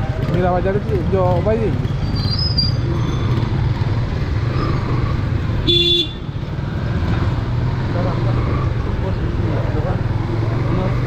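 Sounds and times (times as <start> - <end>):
motorcycle engine running: 0.0 - 2.2
road noise: 0.0 - 11.0
horn toot: 5.6 - 6.3.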